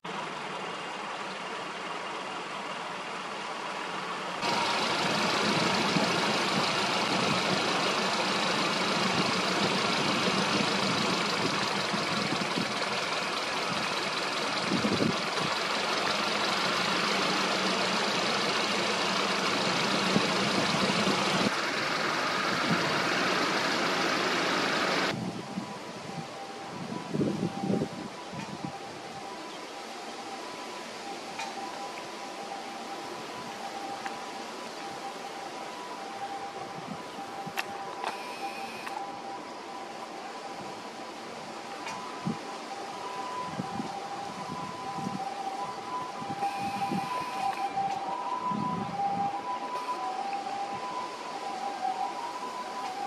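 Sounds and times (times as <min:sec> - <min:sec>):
electric train equipment humming: 0:04.0 - 0:25.2.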